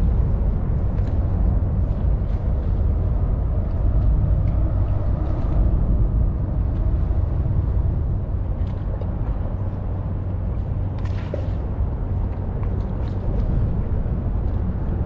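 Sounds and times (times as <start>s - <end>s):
low outdoor rumble: 0.0s - 15.0s
faint light ticks: 0.9s - 1.2s, 3.6s - 5.6s.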